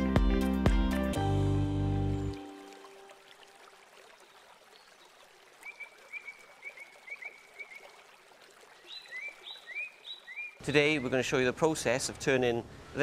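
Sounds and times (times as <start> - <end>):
higher chirping call: 8.9 - 11.2.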